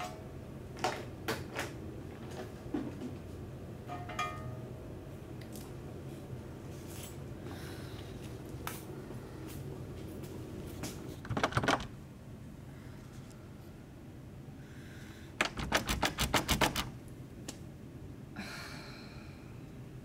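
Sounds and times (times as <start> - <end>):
door handle rattling clicks: 11.3 - 12.0, 15.4 - 16.9
person sighing: 18.4 - 19.5.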